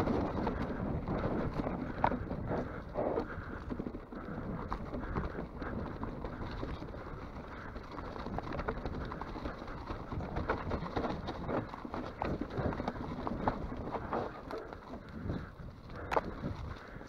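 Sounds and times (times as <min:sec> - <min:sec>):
bike rattling and clattering: 0:00.0 - 0:17.0
tyres rolling over dirt and stones: 0:00.0 - 0:17.0.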